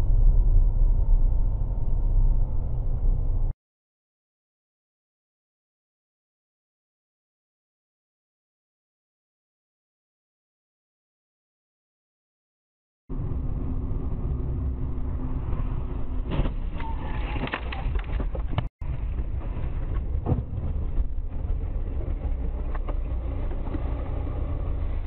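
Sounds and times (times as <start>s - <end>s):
car engine and road noise: 0.0s - 3.6s, 13.1s - 25.0s.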